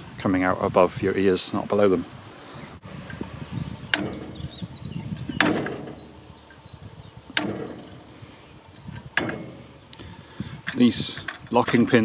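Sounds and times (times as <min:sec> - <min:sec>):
metallic clunks with ring: 0:03.9 - 0:06.7, 0:07.3 - 0:08.1, 0:08.9 - 0:09.7.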